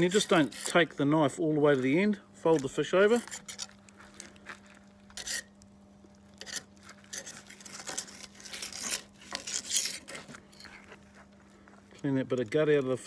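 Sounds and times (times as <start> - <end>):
knife scraping fish bones: 0.0 - 0.9, 3.1 - 3.9, 5.0 - 5.6, 6.3 - 11.7.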